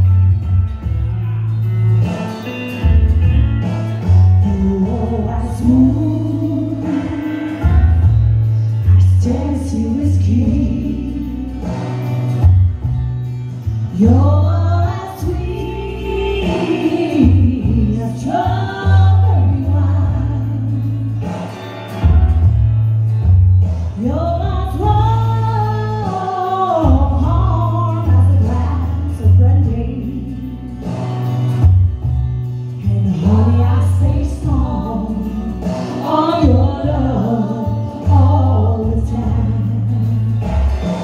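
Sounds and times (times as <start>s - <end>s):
instrumental music with bass beat: 0.0s - 41.0s
woman singing into a microphone: 4.1s - 12.8s, 13.9s - 21.7s, 23.9s - 31.8s, 32.7s - 40.9s.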